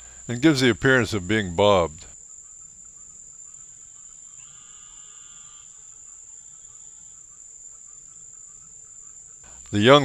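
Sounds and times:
faint drawn-out call: 0:00.0 - 0:10.0
insects chirring: 0:00.0 - 0:10.0.

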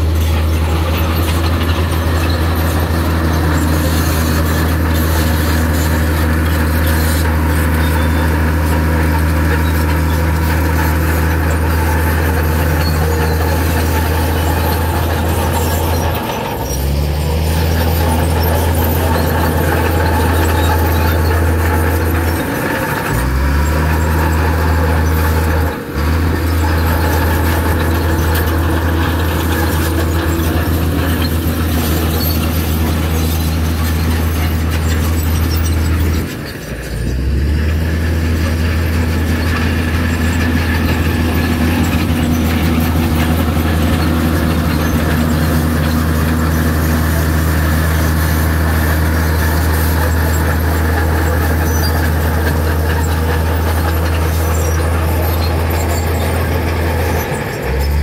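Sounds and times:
bulldozer diesel engine droning: 0:00.0 - 0:58.0.

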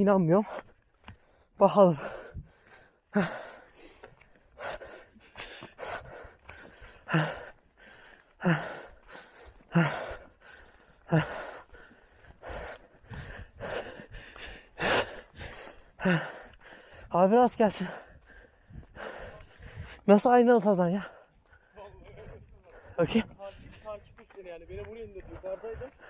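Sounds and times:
man breathing hard: 0:00.4 - 0:17.2, 0:17.8 - 0:20.1
footsteps on gravel: 0:03.7 - 0:20.1, 0:21.0 - 0:26.0.

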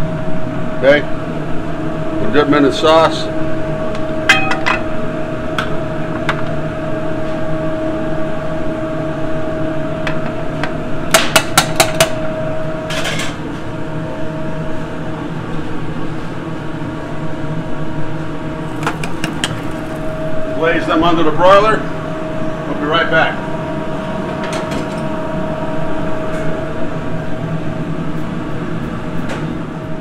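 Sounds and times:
steady kitchen hum: 0:00.0 - 0:30.0.

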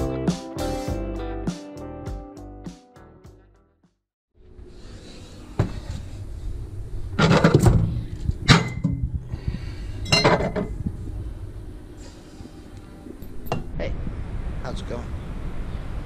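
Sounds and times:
glass bottles clinking: 0:10.1 - 0:10.7.

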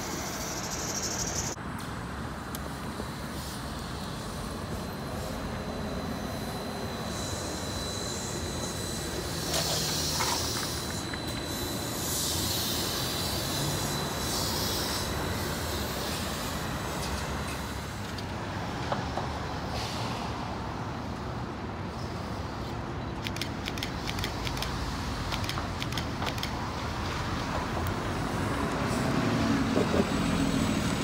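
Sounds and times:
street traffic: 0:00.0 - 0:31.0
trolleybus moving past: 0:00.0 - 0:31.0
air hissing bursts: 0:06.8 - 0:18.0
quick run of clicks: 0:23.2 - 0:26.6.

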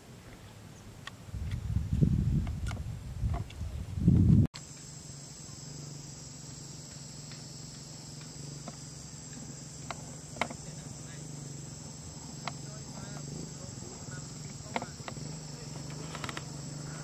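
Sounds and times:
low steady hum: 0:00.0 - 0:17.0
insects chirring: 0:04.6 - 0:17.0.

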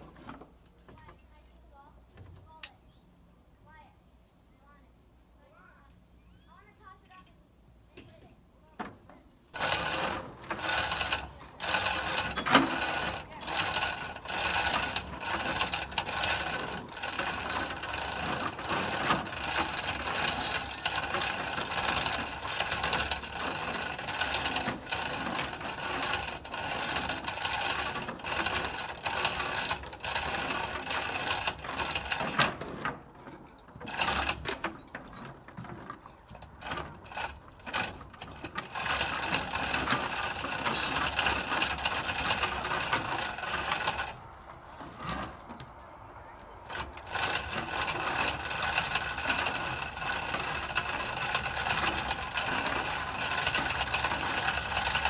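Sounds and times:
hand chain clattering through hoist: 0:09.5 - 0:45.6, 0:46.6 - 0:55.0
ratchet pawl clicking: 0:09.6 - 0:32.6, 0:33.8 - 0:34.4, 0:36.4 - 0:45.2, 0:46.7 - 0:55.0.

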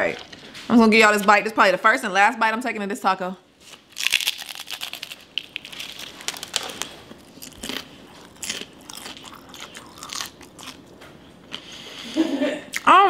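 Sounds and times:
crunching crispy taco shell: 0:03.7 - 0:10.8.

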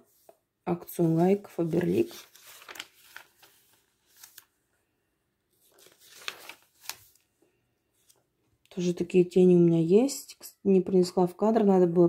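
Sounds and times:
paper rustling: 0:00.1 - 0:04.6, 0:05.5 - 0:07.4
sharp page flaps: 0:01.8 - 0:04.4, 0:05.7 - 0:07.2.

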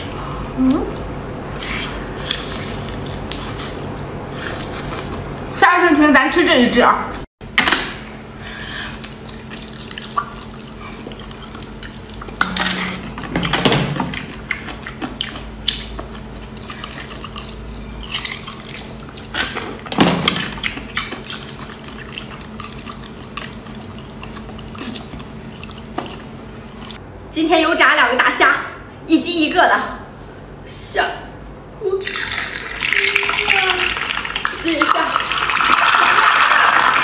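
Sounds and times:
wet slurping mouth sounds: 0:20.4 - 0:26.0.

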